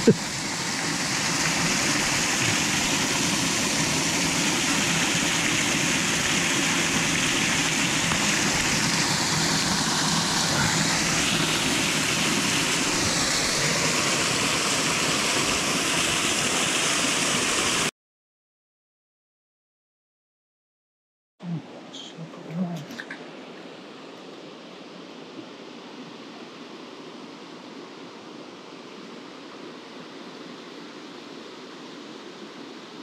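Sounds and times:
stream water rushing over rocks: 0:00.0 - 0:17.9.

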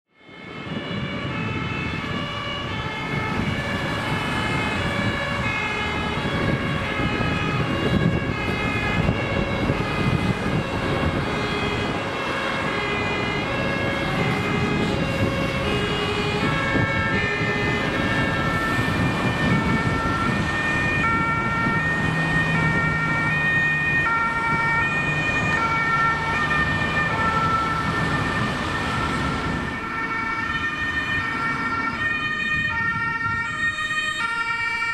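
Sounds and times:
road traffic: 0:00.1 - 0:34.9
two-tone emergency sirens: 0:00.1 - 0:34.9.

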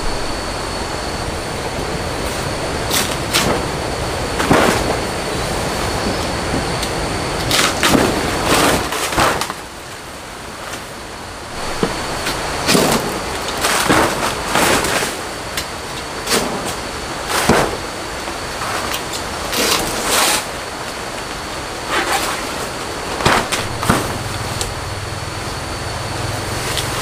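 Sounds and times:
leaves rustling: 0:10.5 - 0:15.4, 0:18.7 - 0:27.0.

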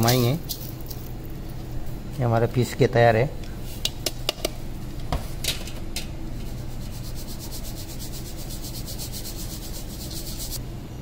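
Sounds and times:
sieve scratching while shaken: 0:06.4 - 0:10.6.

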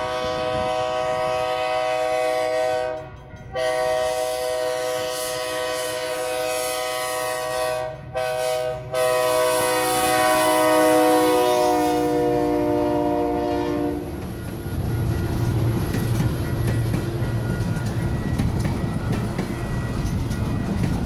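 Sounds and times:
train horn chime: 0:00.0 - 0:15.4
train rolling by: 0:00.0 - 0:21.0.

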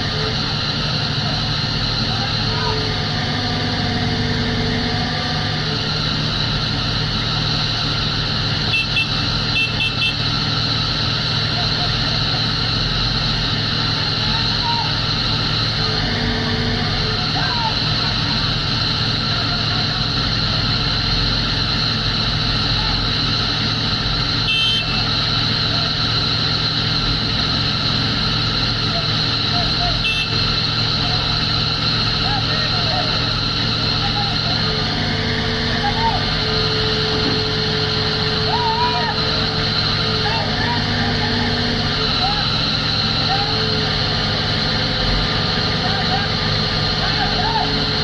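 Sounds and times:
excavator diesel engines droning: 0:00.0 - 0:48.0
high hydraulic whine: 0:00.0 - 0:48.0.

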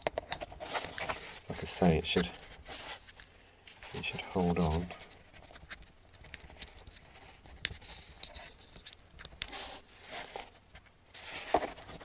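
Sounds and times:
rustle: 0:09.5 - 0:12.0.

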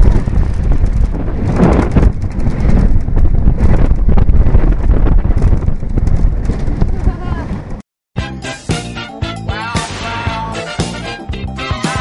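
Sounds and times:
roller coaster wheels rumbling: 0:00.0 - 0:07.8
wind buffeting microphone: 0:00.0 - 0:07.8.

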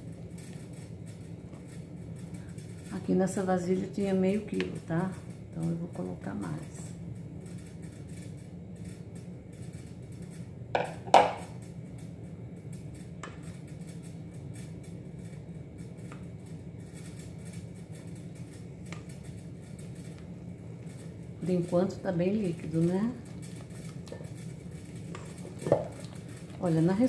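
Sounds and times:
bowls knocking: 0:10.8 - 0:11.5
spatula stirring batter in bowl: 0:22.6 - 0:27.0.

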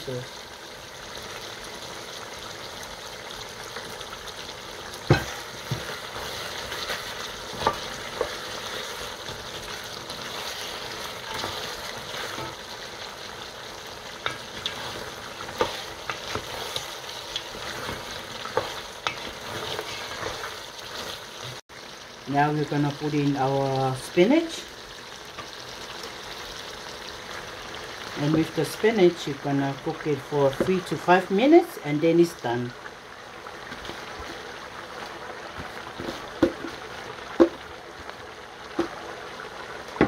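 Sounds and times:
meat and onions sizzling: 0:00.0 - 0:40.0
wooden spoon knocking pot: 0:37.4 - 0:37.6.

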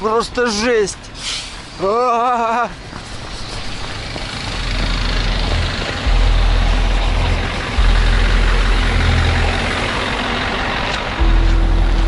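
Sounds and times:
road noise hiss: 0:00.0 - 0:12.0
vehicle engine rumble: 0:00.0 - 0:12.0.

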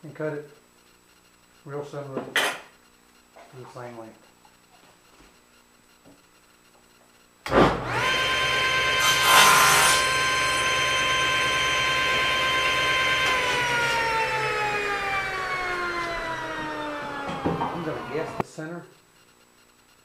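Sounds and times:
saw cutting wood: 0:07.8 - 0:18.4
table saw blade whining: 0:07.8 - 0:18.4.

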